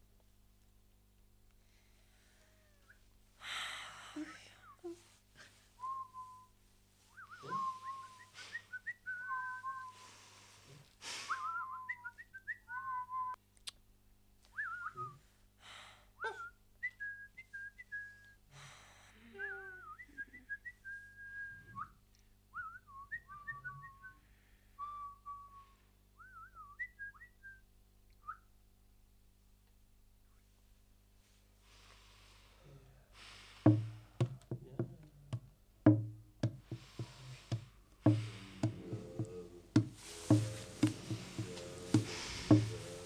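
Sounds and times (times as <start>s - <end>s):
breathy hiss: 1.6s - 6.2s, 9.6s - 11.5s, 15.1s - 16.2s, 18.5s - 19.7s, 31.2s - 34.4s, 36.4s - 43.0s
person whistling a tune: 5.8s - 6.5s, 7.1s - 10.1s, 11.3s - 13.4s, 14.6s - 15.2s, 19.4s - 22.0s, 22.6s - 24.2s, 24.8s - 27.6s.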